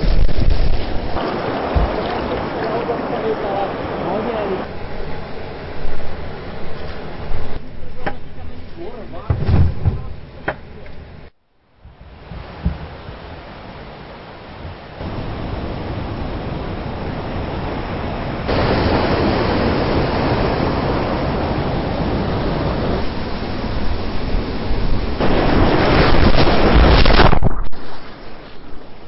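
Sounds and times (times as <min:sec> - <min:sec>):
river rapids rushing: 0:00.8 - 0:07.6, 0:12.2 - 0:27.1.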